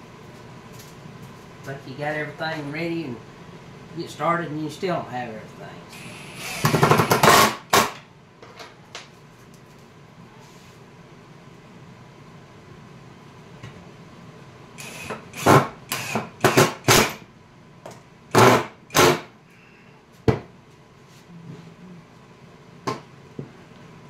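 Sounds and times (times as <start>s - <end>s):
cordless drill boring into wood: 5.9s - 7.6s, 14.8s - 17.1s.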